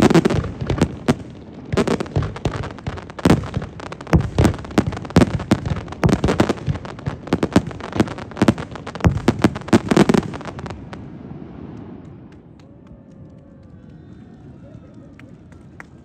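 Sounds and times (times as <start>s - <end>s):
fireworks crackle: 0.0s - 12.6s.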